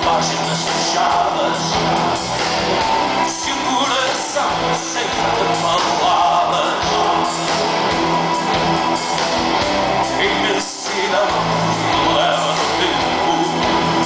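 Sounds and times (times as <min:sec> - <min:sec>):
man singing: 0:00.0 - 0:02.1, 0:03.2 - 0:07.8, 0:10.0 - 0:14.0
bass guitar: 0:00.0 - 0:14.0
drums: 0:00.0 - 0:14.0
electric guitars: 0:00.0 - 0:14.0.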